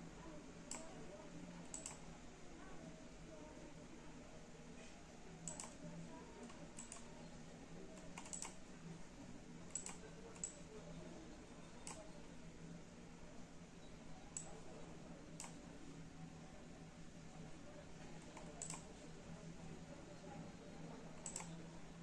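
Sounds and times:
computer input clicks: 0.7 - 1.0, 1.6 - 2.1, 5.4 - 7.1, 8.0 - 8.6, 9.7 - 10.7, 11.7 - 12.1, 15.4 - 15.6, 18.2 - 19.0, 21.2 - 21.6.

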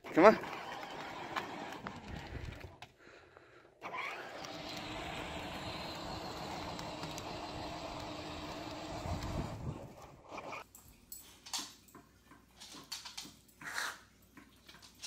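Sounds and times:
tyres rolling on asphalt: 0.0 - 2.8, 3.8 - 10.2
toy car electric motor hum: 0.1 - 2.8, 3.8 - 10.6.

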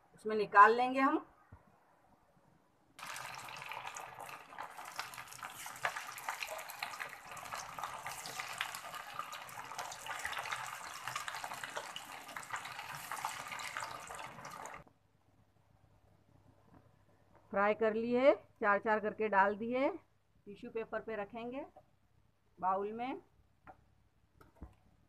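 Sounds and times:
food deep-frying in hot oil: 3.0 - 14.9.

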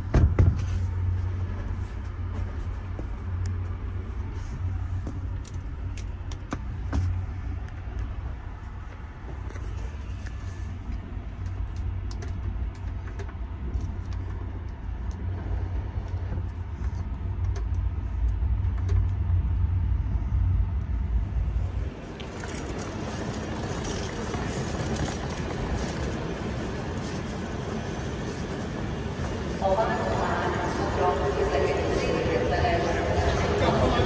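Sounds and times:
railway carriage rumble: 0.0 - 34.0
station hall hiss and clatter: 0.0 - 34.0
faint rattles and clicks: 8.8 - 19.4.

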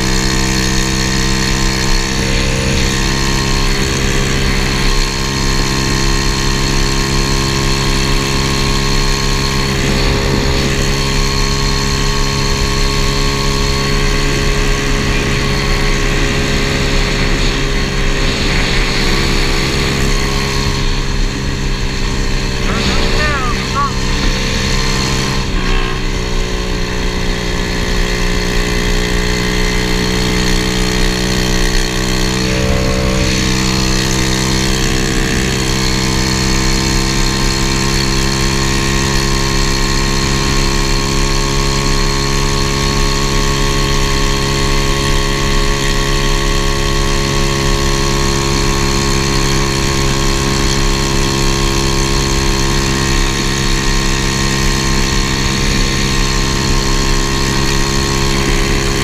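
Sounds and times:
small engine running steadily: 0.0 - 59.0.

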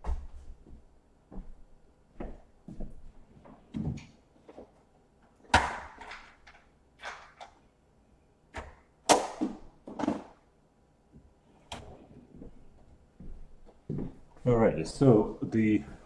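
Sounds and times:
knocks and clatters of rummaging: 9.4 - 10.4.

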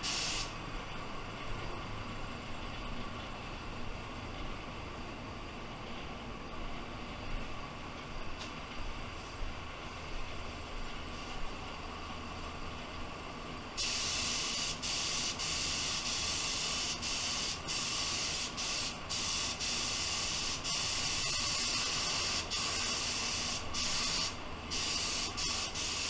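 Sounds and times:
spray gun hissing: 0.0 - 0.6, 13.8 - 26.0.

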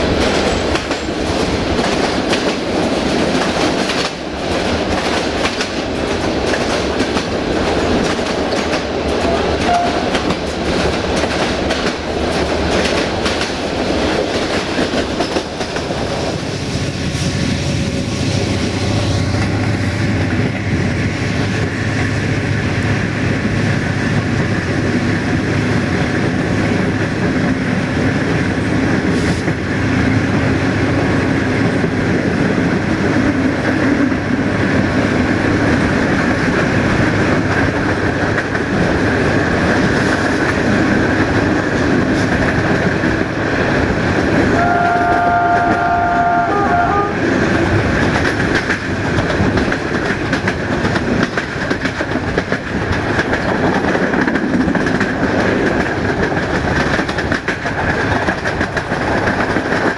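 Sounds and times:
train wheels clicking over rail joints: 0.0 - 44.9, 47.5 - 59.9.

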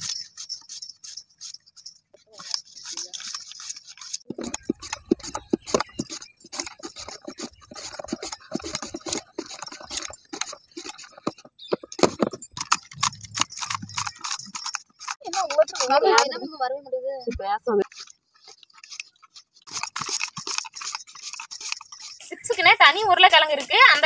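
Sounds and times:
bangles jingling: 0.0 - 16.7, 17.8 - 24.0
potatoes scraping across slicer blade: 2.4 - 12.0.

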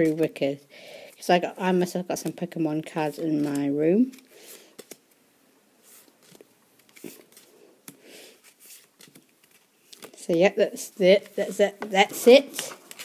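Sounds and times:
cards swishing: 5.8 - 10.2.

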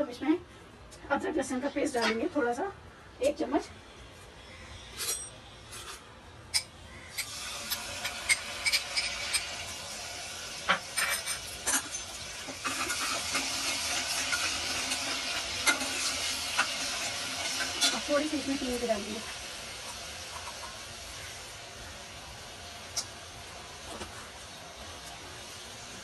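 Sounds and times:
paste sizzling in hot oil: 7.2 - 26.0.

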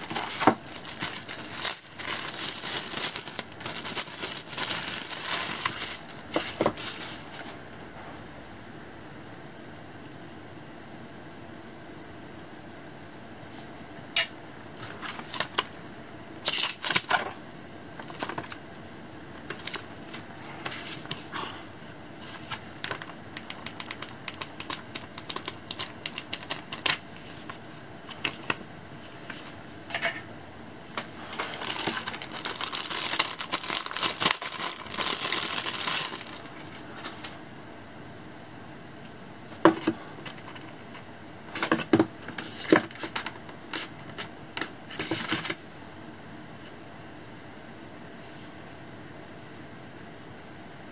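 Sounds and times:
paper rustling: 0.0 - 7.6, 30.9 - 37.4.

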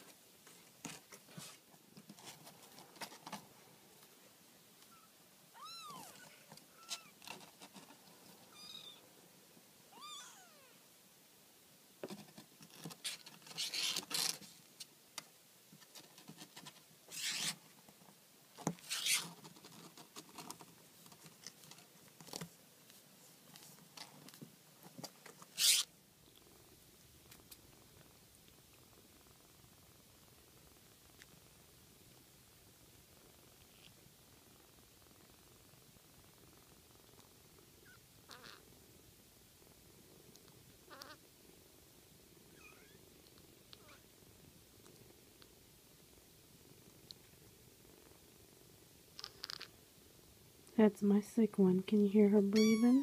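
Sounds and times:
kittens mewing: 4.9 - 7.2, 9.9 - 10.8, 37.8 - 38.6, 40.9 - 41.2, 52.6 - 53.0.

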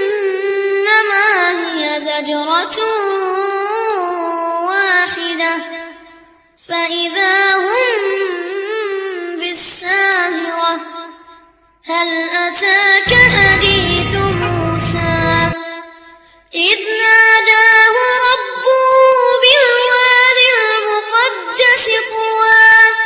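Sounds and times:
high voice singing with vibrato: 13.1 - 15.6.

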